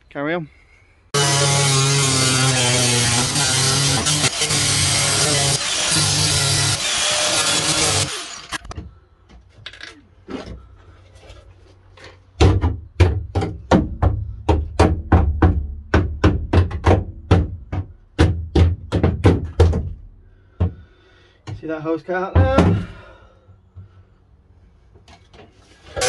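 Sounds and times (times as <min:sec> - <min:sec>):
angle grinder cutting: 0:01.1 - 0:08.8.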